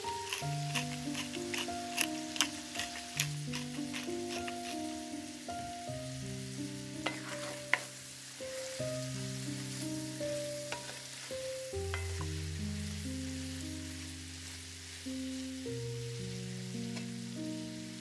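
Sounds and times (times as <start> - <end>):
potatoes sizzling in a skillet: 0.0 - 18.0
soft background music: 0.0 - 18.0
wooden spoon knocking on pan: 7.0 - 7.9, 10.7 - 11.0, 11.9 - 12.4.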